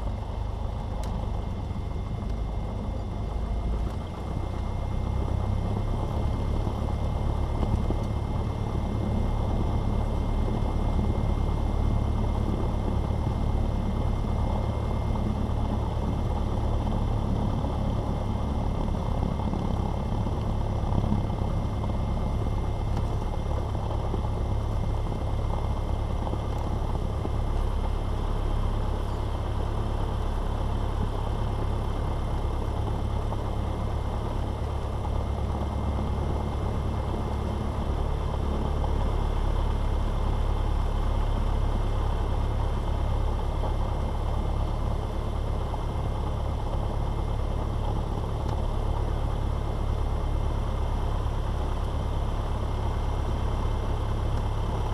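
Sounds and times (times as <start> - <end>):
airplane engine idling: 0.0 - 54.9.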